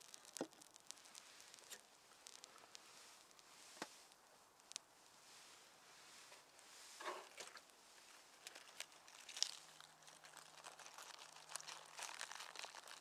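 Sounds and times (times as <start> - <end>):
lettuce leaf crinkling: 8.3 - 13.0.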